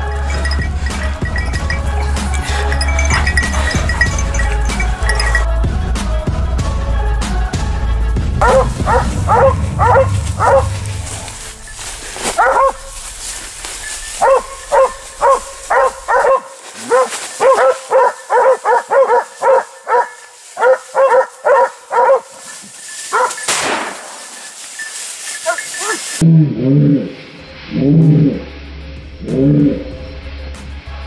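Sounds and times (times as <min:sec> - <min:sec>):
dogs barking and yelping: 0:00.0 - 0:05.5, 0:08.4 - 0:26.2.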